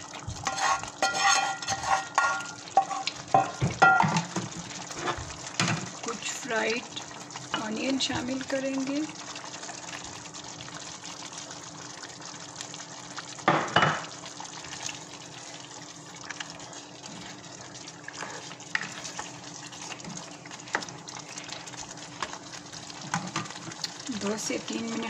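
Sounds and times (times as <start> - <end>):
gravy sizzling in a saucepan: 0.0 - 25.0.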